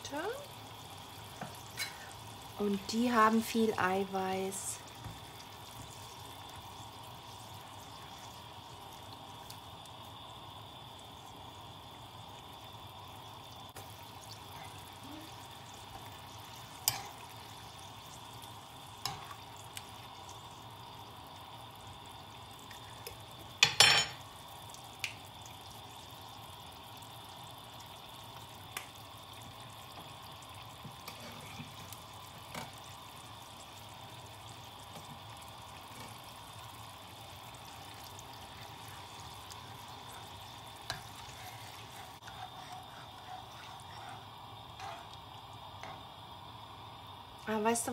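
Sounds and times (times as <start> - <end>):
utensils stirring curry in pan: 15.4 - 17.6, 18.9 - 19.9, 30.8 - 32.8, 37.4 - 46.1.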